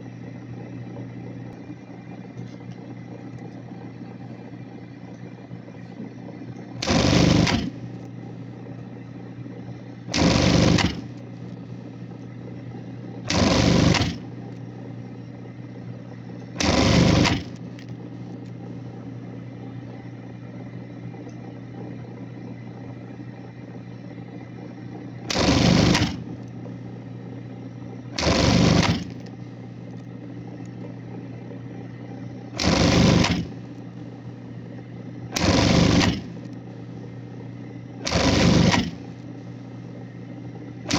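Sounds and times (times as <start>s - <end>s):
steady hum: 0.0s - 40.9s
sewing machine stitching: 6.8s - 7.8s, 10.1s - 11.1s, 13.3s - 14.3s, 16.6s - 17.9s, 25.3s - 26.4s, 28.2s - 29.2s, 32.6s - 33.6s, 35.3s - 36.4s, 38.0s - 39.2s.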